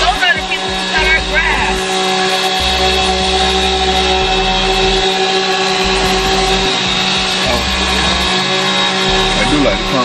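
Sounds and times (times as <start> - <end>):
mechanical whirring hum: 0.0 - 10.0
deep rumble cutting in and out: 2.6 - 9.9.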